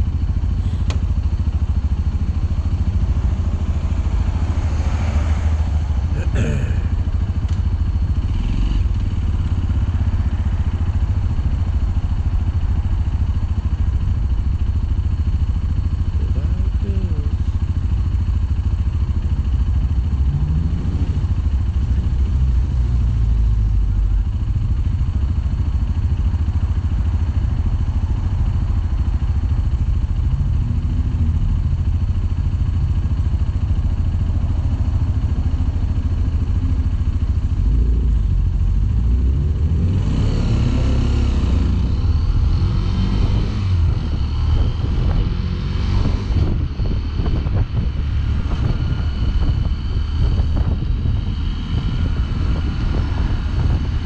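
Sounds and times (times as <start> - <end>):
motorcycle engine running: 0.0 - 54.0
wind rumble on microphone: 40.4 - 54.0.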